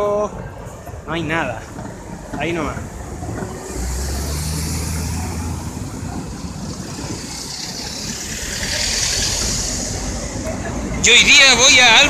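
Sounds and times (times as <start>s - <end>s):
street traffic: 0.0s - 12.0s
truck engine passing: 0.4s - 12.0s
hiss: 7.2s - 10.5s.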